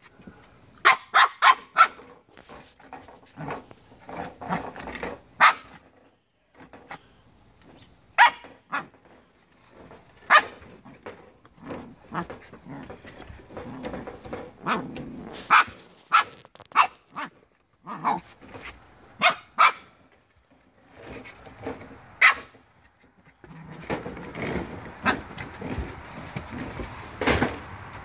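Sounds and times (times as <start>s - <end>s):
puppy yapping: 0.8s - 2.0s, 19.2s - 19.9s, 22.2s - 22.5s.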